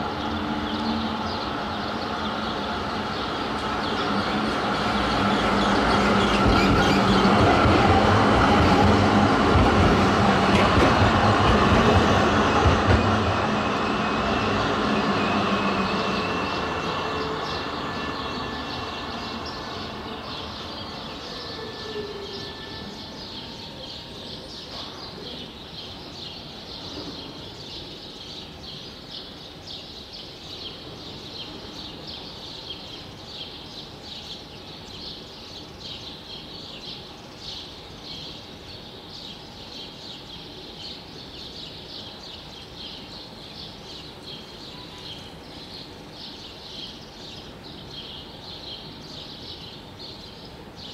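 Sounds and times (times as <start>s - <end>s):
tram running hum: 0.0s - 30.0s.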